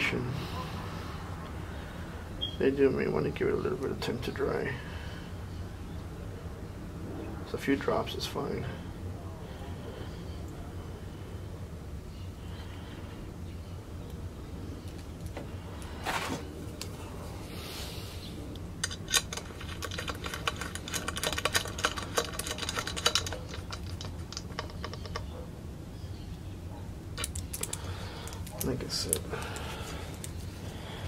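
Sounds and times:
low steady hum: 0:00.0 - 0:31.0
metal fitting clicking and rattling: 0:18.8 - 0:25.3.

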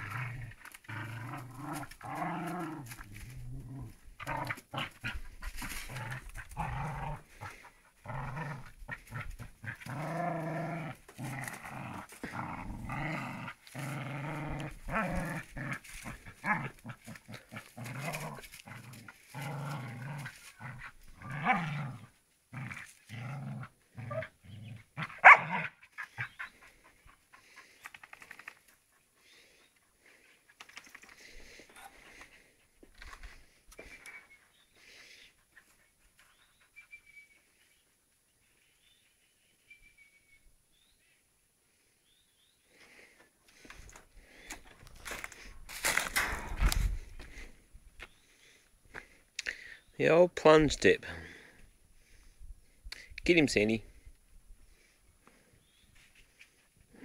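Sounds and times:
dog growling: 0:00.0 - 0:26.9.

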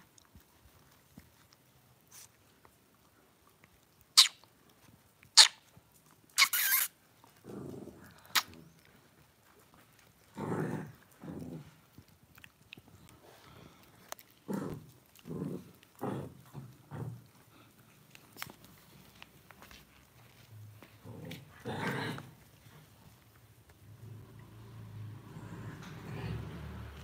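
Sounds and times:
puppies growling: 0:07.3 - 0:19.0, 0:20.8 - 0:27.0.

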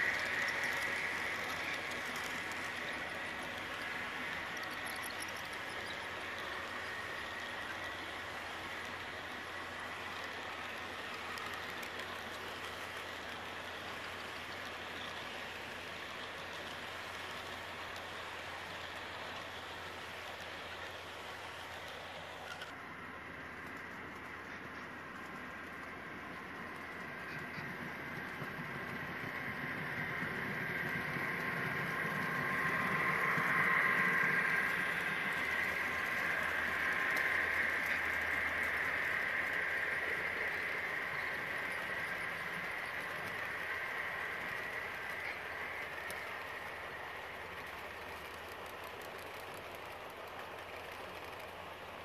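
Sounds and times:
model train wheels on rail: 0:00.0 - 0:52.0
faint clicks: 0:10.1 - 0:15.2, 0:30.2 - 0:52.0.

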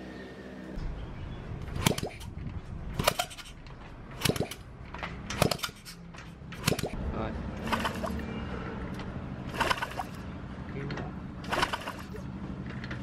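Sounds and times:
sharp metallic clicks: 0:01.7 - 0:07.0.

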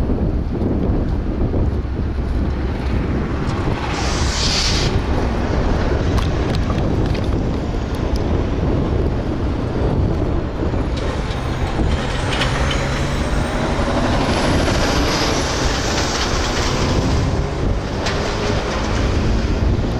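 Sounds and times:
diesel locomotive engine rumble: 0:00.0 - 0:19.9
passing road traffic: 0:00.0 - 0:19.9
air hiss: 0:03.7 - 0:05.6.

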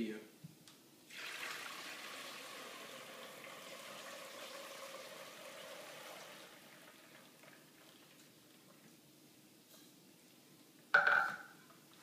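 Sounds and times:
liquid pouring through strainer: 0:01.1 - 0:08.3.

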